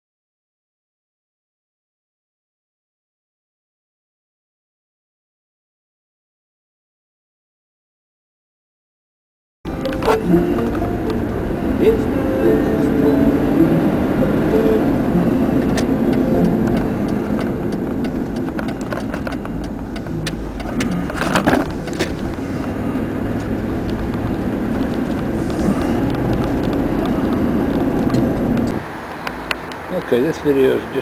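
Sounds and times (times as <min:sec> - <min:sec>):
car engine and tyre rumble: 0:09.7 - 0:31.0.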